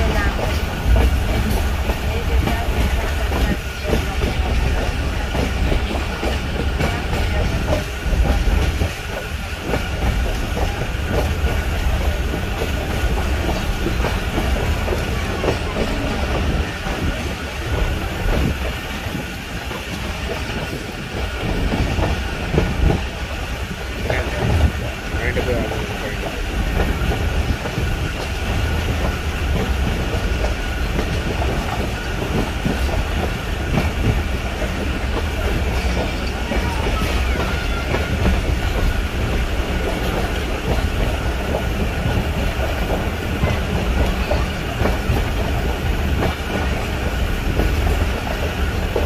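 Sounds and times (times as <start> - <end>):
train rumble: 0.0 - 49.0.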